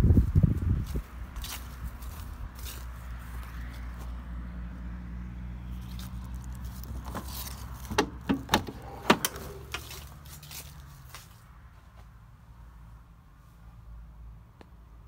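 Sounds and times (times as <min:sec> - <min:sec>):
car door clicks and knocks: 0:07.9 - 0:09.4.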